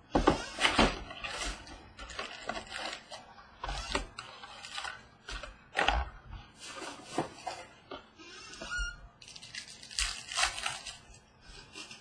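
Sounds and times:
wrapped cards crinkling and clicking: 0:09.2 - 0:11.9.

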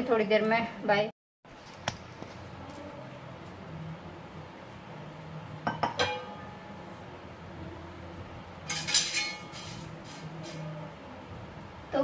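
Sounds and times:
metal cookware clinking: 0:05.7 - 0:06.7, 0:08.7 - 0:09.9.

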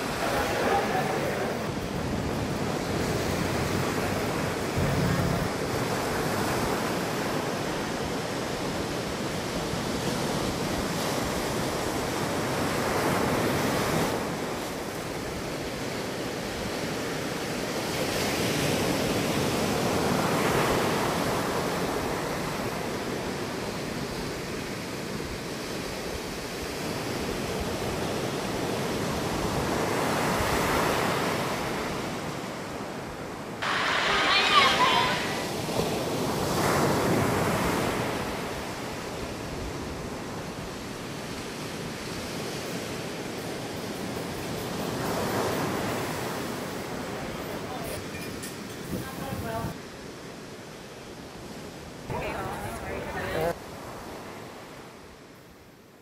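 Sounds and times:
sea waves washing onto beach: 0:00.0 - 0:55.4.

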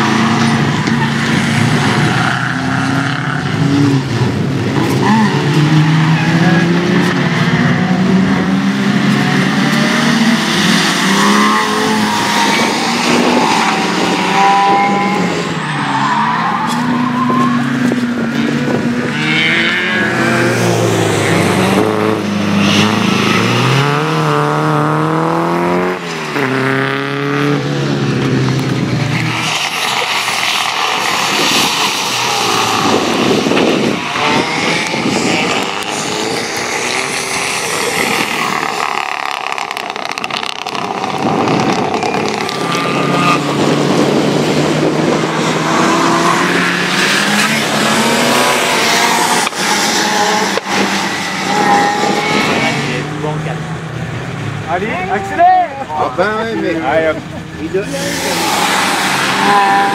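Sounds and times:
rally car engines revving: 0:00.0 - 0:59.9
tyres hissing on wet track: 0:29.2 - 0:32.8, 0:57.9 - 0:59.8.

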